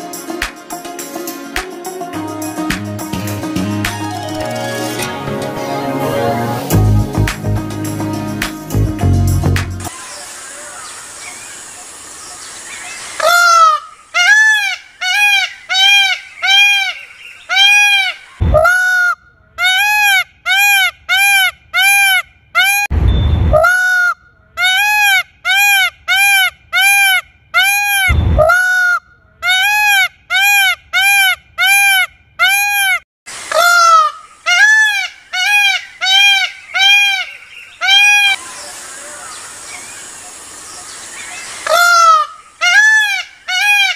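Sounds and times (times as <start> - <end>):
peacock calling: 9.9 - 22.9, 23.6 - 43.9.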